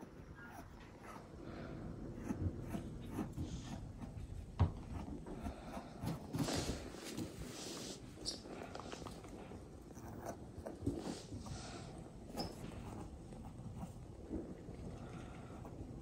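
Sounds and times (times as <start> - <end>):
rubber balls scuffing on carpet: 2.6 - 9.6
rustling: 2.6 - 15.8.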